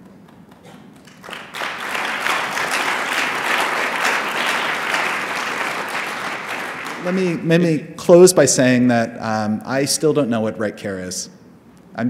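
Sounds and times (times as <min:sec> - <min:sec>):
audience applauding: 0:00.4 - 0:07.5.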